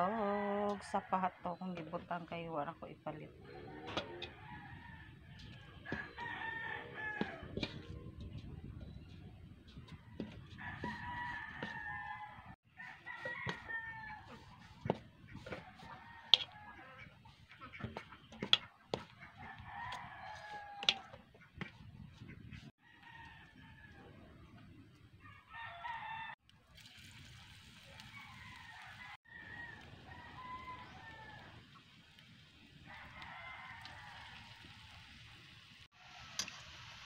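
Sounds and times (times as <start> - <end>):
chickens calling: 3.3 - 22.7
rooster crowing: 3.4 - 7.7, 10.6 - 14.6, 19.4 - 21.1, 25.2 - 26.4, 28.1 - 31.6, 32.9 - 34.6.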